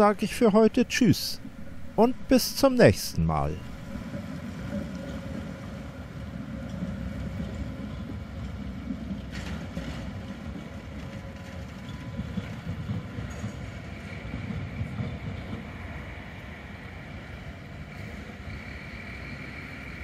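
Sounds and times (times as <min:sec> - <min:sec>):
tram rumbling: 0:00.0 - 0:20.0.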